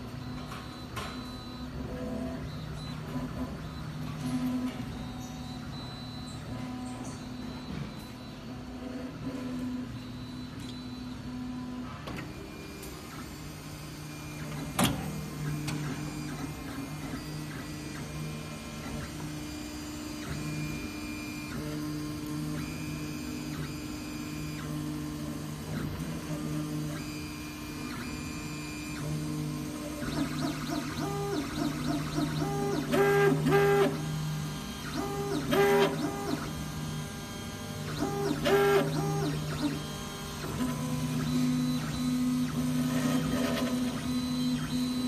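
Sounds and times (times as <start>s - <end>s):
printer motors humming: 0.0s - 45.0s.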